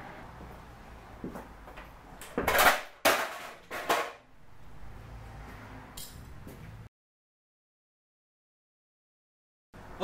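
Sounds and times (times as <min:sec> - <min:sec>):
hard objects clattering: 0:02.3 - 0:04.3.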